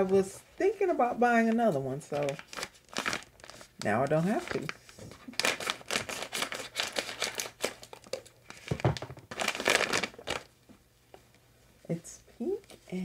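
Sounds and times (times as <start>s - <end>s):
plastic packaging crinkling: 2.1s - 10.6s.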